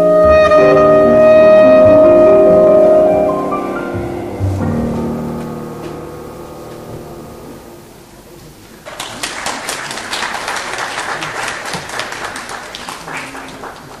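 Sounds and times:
audience applause: 0:08.8 - 0:14.0.

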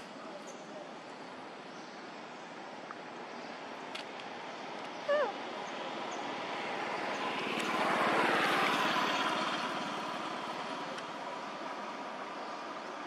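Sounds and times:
motor vehicle passing: 0:06.4 - 0:12.1.

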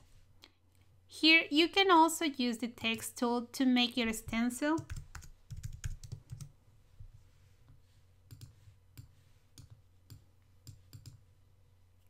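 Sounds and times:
keyboard keys tapping: 0:04.3 - 0:06.5.

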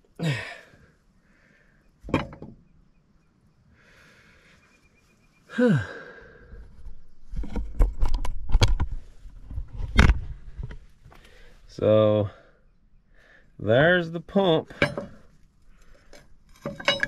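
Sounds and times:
man grunting sighs: 0:00.2 - 0:01.0, 0:05.5 - 0:06.6
sharp clicks and knocks: 0:07.4 - 0:11.2.

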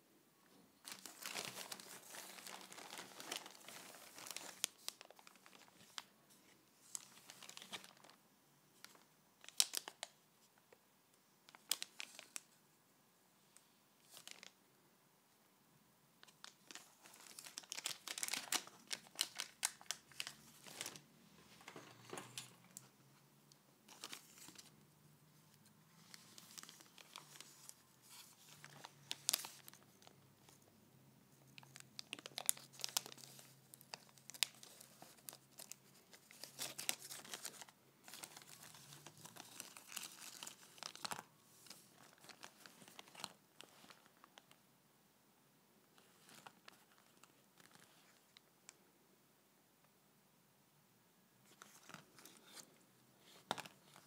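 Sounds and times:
plastic packaging crinkling: 0:00.8 - 0:06.1, 0:06.8 - 0:08.2, 0:08.8 - 0:10.2, 0:14.1 - 0:14.6, 0:16.2 - 0:22.9, 0:26.0 - 0:30.2, 0:31.5 - 0:44.5, 0:53.3 - 0:54.0.

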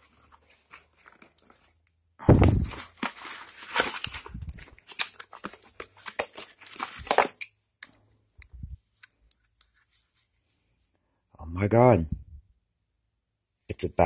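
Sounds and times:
cardboard box rustling: 0:02.4 - 0:07.4.

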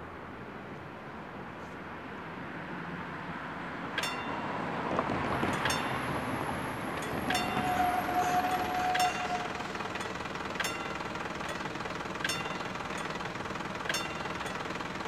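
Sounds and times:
crossing warning bell ringing: 0:03.9 - 0:15.0
car driving over crossing: 0:04.2 - 0:14.1.

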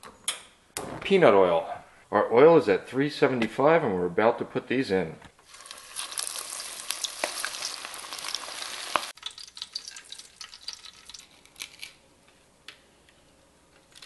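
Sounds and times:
food deep-frying in oil: 0:05.4 - 0:12.0.

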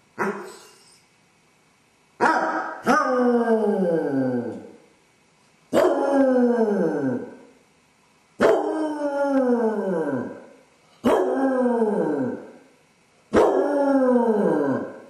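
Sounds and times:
dog howling: 0:05.8 - 0:07.4, 0:08.4 - 0:10.4, 0:11.0 - 0:12.5, 0:13.3 - 0:15.0.

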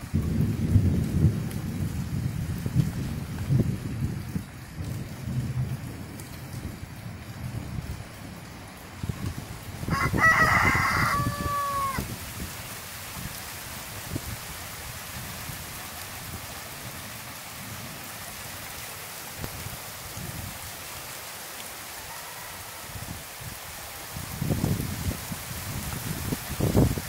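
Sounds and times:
steady rain falling: 0:00.0 - 0:27.0
rooster crowing: 0:09.9 - 0:12.1, 0:21.9 - 0:23.2.

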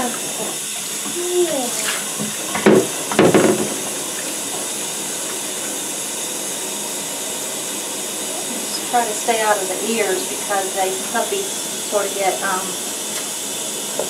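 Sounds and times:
shower water running into bathtub: 0:00.0 - 0:14.0
sprayer head knocking in tub: 0:02.2 - 0:04.0.

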